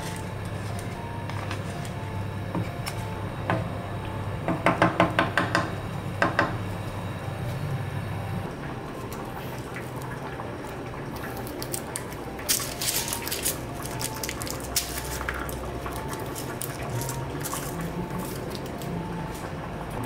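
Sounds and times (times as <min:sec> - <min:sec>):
garlic skins crackling and rustling: 0:11.2 - 0:19.6.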